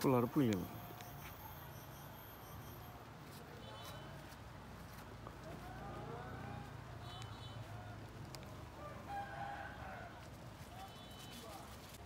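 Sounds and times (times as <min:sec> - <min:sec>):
rooster crowing: 0:08.8 - 0:10.3.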